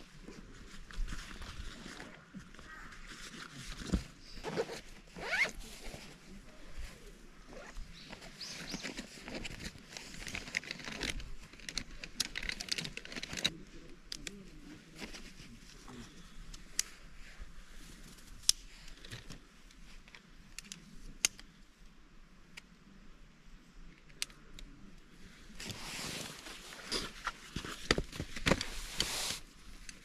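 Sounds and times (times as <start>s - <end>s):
gear crinkling and rustling: 3.4s - 6.3s, 7.5s - 17.0s.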